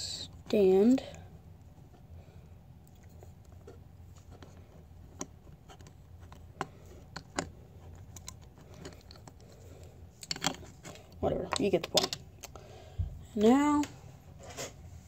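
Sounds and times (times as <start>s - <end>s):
faint low hum: 0.0s - 15.0s
plastic bricks clicking: 10.2s - 10.7s, 11.4s - 12.2s.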